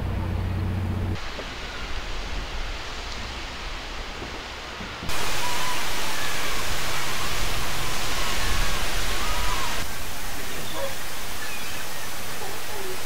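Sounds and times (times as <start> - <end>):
waterfall rushing hiss: 1.2 - 13.0.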